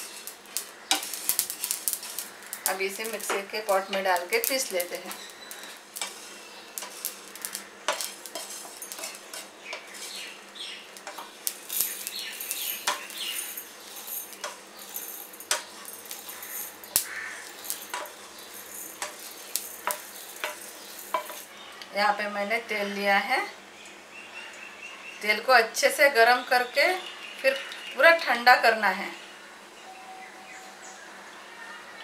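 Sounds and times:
spatula scraping frying pan: 0:00.0 - 0:21.5
seeds rattling into steel jar: 0:00.0 - 0:21.6.

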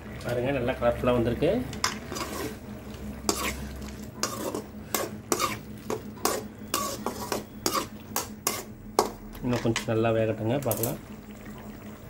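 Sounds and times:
ladle scraping metal pan: 0:01.8 - 0:02.7, 0:03.3 - 0:09.1.

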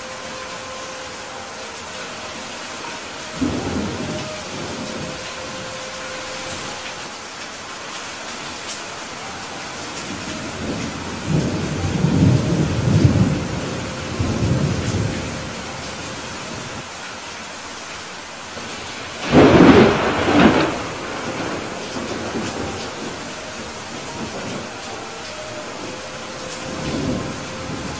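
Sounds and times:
steady rain: 0:00.0 - 0:27.9
rolling thunder: 0:18.6 - 0:27.9.

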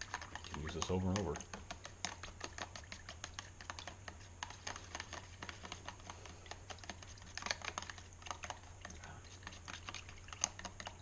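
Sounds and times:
stir stick clicking against plastic tub: 0:00.0 - 0:11.0.

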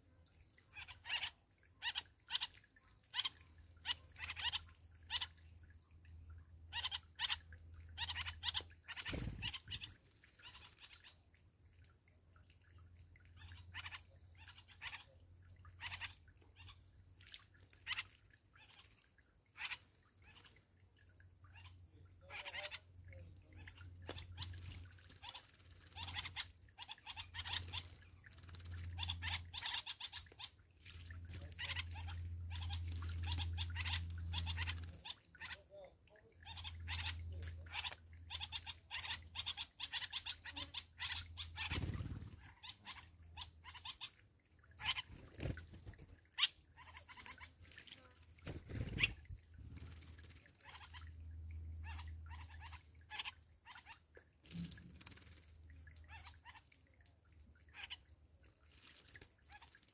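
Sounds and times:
birds splashing in water: 0:00.0 - 0:59.9
wing flutters: 0:08.5 - 0:11.0, 0:24.0 - 0:29.9, 0:41.0 - 0:43.0, 0:44.8 - 0:51.1, 0:54.4 - 0:55.9, 0:58.5 - 0:59.9
birds chirping: 0:21.4 - 0:44.2, 0:48.4 - 0:54.0.

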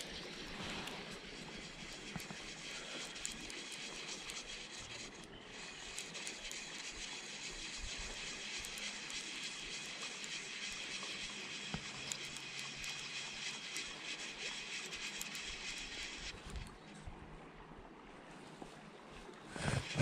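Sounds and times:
shallow stream running: 0:00.0 - 0:20.0.

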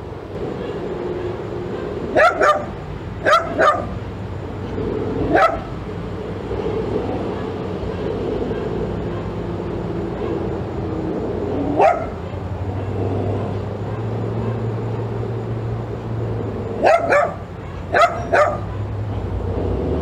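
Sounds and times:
steady background hum: 0:00.0 - 0:19.7
dog barking: 0:00.5 - 0:04.0, 0:05.2 - 0:05.8, 0:06.6 - 0:10.6, 0:11.6 - 0:15.1, 0:16.8 - 0:19.2.

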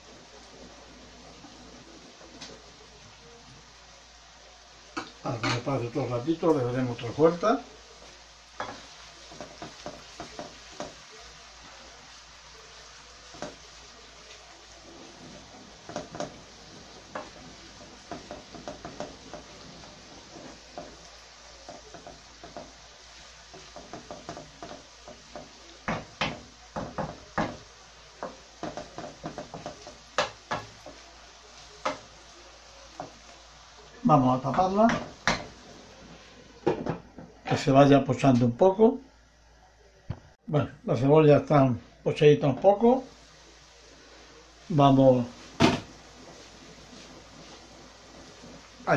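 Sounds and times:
onions sizzling in oil: 0:00.0 - 0:48.9
wooden spoon knocking in a pan: 0:08.6 - 0:11.1, 0:13.3 - 0:13.7, 0:15.1 - 0:31.2, 0:31.8 - 0:32.2, 0:32.9 - 0:33.3, 0:34.4 - 0:35.6, 0:36.6 - 0:37.4, 0:45.6 - 0:47.1.

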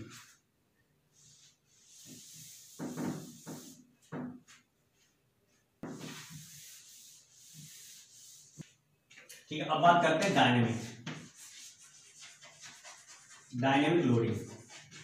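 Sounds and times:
cloth rubbing chalk off blackboard: 0:00.0 - 0:00.4, 0:01.1 - 0:08.8, 0:10.6 - 0:15.0.

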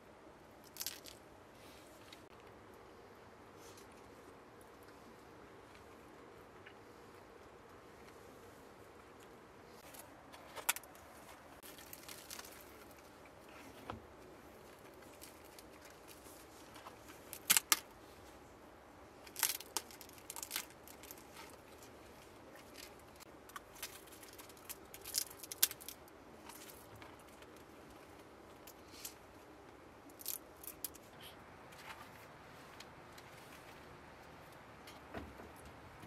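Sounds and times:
soft handling of food: 0:00.7 - 0:35.0
bread crust crackling: 0:09.8 - 0:18.0, 0:19.2 - 0:29.2.

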